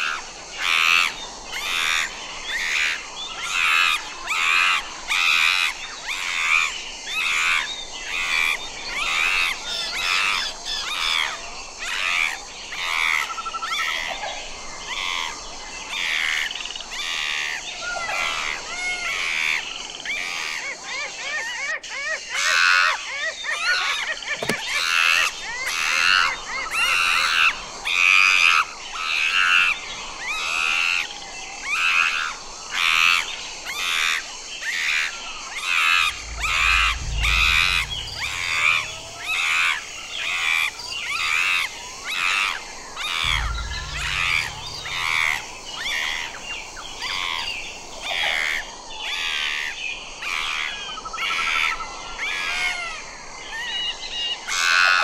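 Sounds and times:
low rumble: 0:36.0 - 0:42.0, 0:43.2 - 0:47.0.

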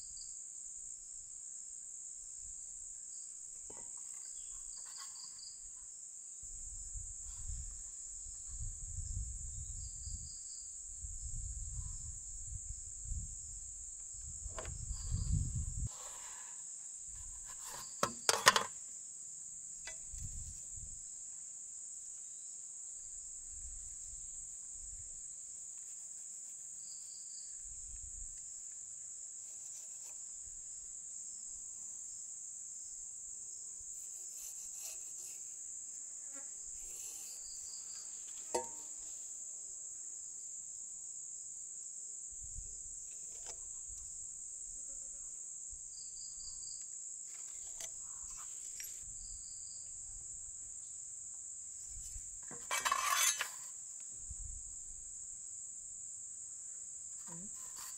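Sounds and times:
insects chorus: 0:00.0 - 0:57.9
tools clicking and knocking: 0:17.7 - 0:18.7, 0:52.4 - 0:53.6.

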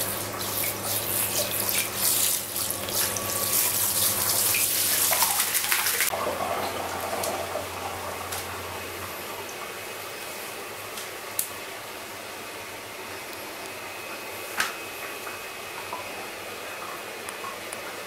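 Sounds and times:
shower head spraying water: 0:00.0 - 0:06.1.

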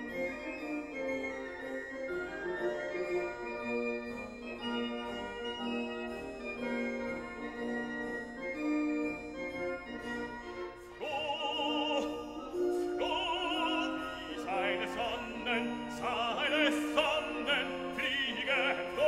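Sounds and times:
operatic singing voice: 0:11.0 - 0:19.0.

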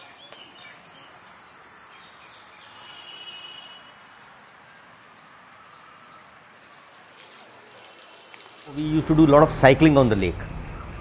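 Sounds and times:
high insect trill: 0:00.0 - 0:05.0
faint outdoor ambience: 0:00.0 - 0:11.0.

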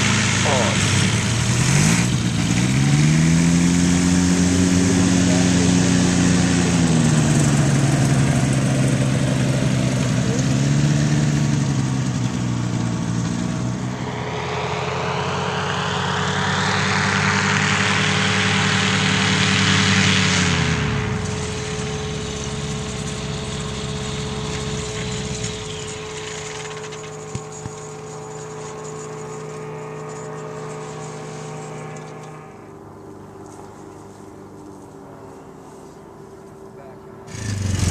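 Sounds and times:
engine and propeller running: 0:00.0 - 0:37.9
rushing whoosh: 0:12.4 - 0:21.7.

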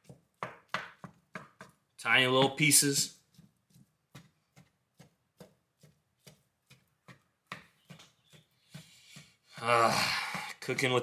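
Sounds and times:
wooden spatula tapping in a pan: 0:00.0 - 0:02.6, 0:03.4 - 0:09.5.

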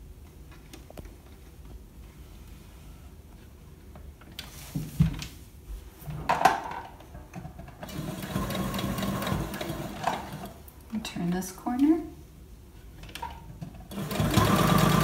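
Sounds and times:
sewing machine stitching: 0:07.8 - 0:10.6, 0:13.9 - 0:15.0.

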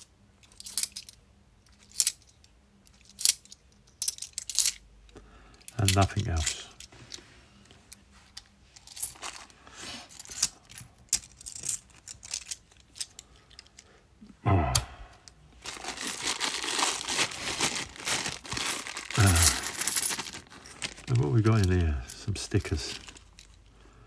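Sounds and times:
plastic bag crinkling: 0:15.5 - 0:23.7.

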